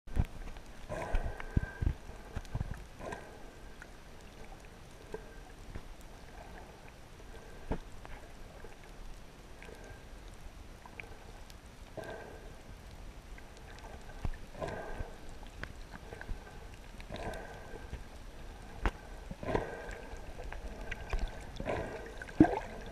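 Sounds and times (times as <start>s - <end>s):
muffled underwater rushing: 0.1s - 8.8s, 13.4s - 22.9s.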